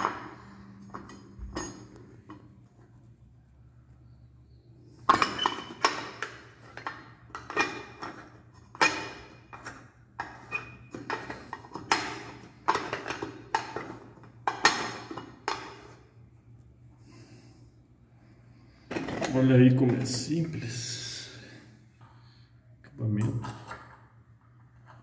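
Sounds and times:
metallic clinks and scrapes: 0.0 - 2.6.

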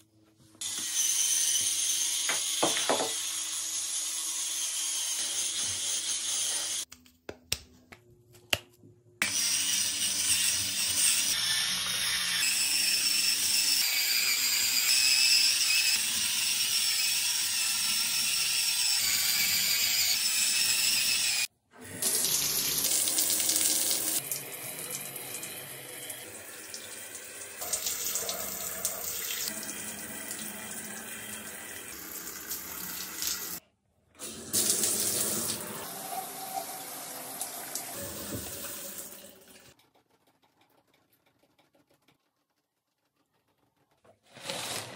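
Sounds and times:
electric scrub brush whirring: 9.2 - 21.5.

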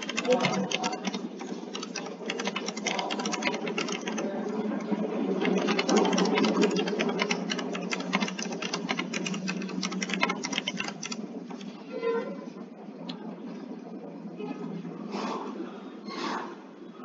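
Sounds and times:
rapid mechanical clicking: 0.0 - 11.8
steady low hum: 0.0 - 16.0.

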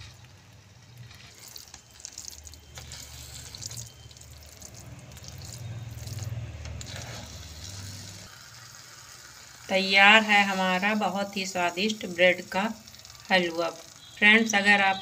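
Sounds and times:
spatula scraping a pan: 1.0 - 2.0, 2.6 - 4.0, 6.8 - 9.6
spatula stirring wet food: 1.0 - 14.2.

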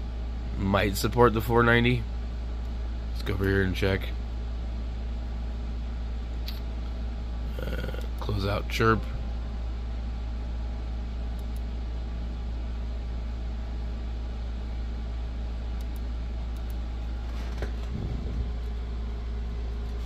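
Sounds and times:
low machine hum: 0.0 - 20.0
low bump and rustle: 17.4 - 18.6.

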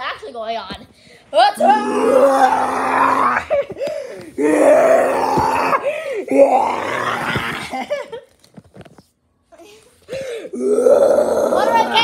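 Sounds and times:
child groaning cries: 10.5 - 12.0.

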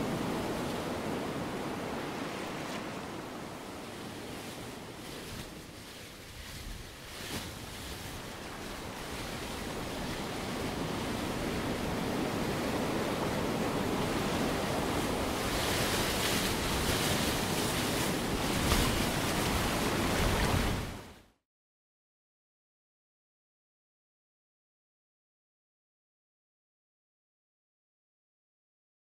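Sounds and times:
ocean surf through loudspeakers: 0.0 - 6.2, 8.1 - 21.2.

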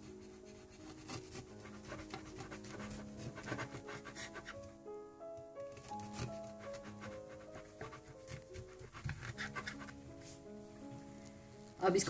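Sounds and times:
knife sawing through cake: 0.0 - 4.6, 5.8 - 10.0
soft background music: 0.0 - 12.0.

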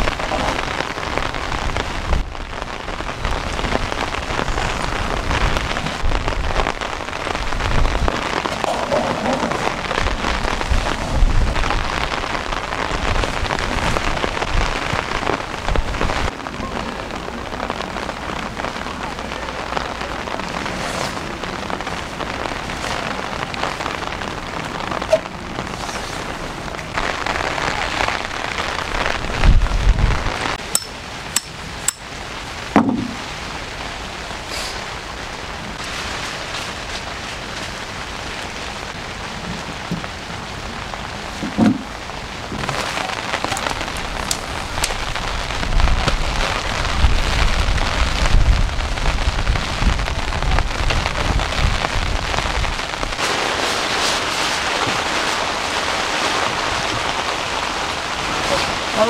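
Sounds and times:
gusty wind rumbles: 0.0 - 16.4, 23.4 - 34.3, 37.8 - 59.0
heavy rain falling: 0.0 - 59.0
sharp knocks: 32.8 - 33.2.

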